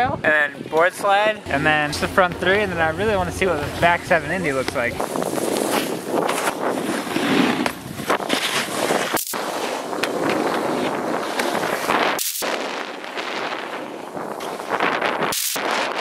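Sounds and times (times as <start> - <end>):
wind buffeting microphone: 0.0 - 16.0
snowboards scraping on snow: 1.6 - 16.0
sharp crackles on snow: 5.0 - 16.0.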